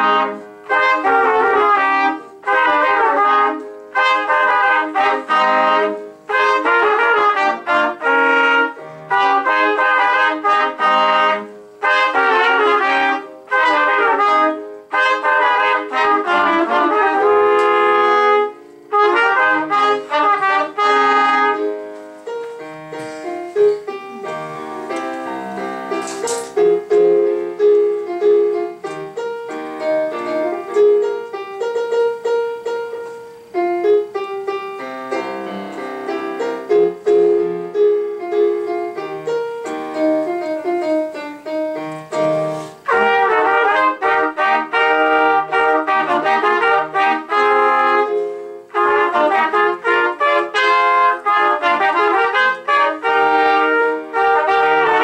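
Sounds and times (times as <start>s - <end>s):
trumpets playing together: 0.0s - 26.6s, 40.0s - 55.0s
piano accompaniment: 0.0s - 55.0s.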